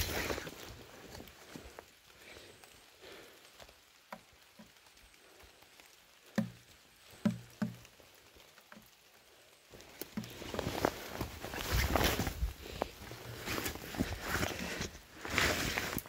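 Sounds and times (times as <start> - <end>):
footsteps through wet brush: 0.0 - 3.3, 9.6 - 16.0
faint steady hiss: 0.0 - 16.0.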